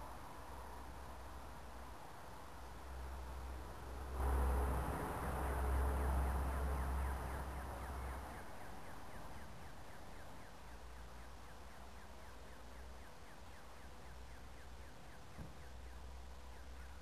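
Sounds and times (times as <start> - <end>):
steady low rumble: 0.0 - 17.0
vehicle passing: 3.1 - 10.2.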